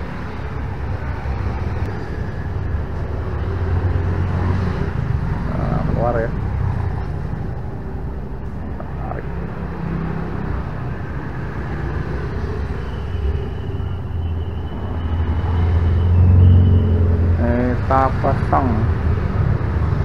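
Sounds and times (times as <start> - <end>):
vehicle engine rumble: 0.0 - 20.0.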